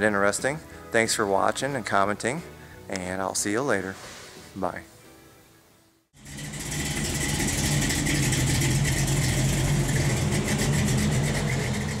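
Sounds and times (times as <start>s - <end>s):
engine idling: 6.2s - 12.0s.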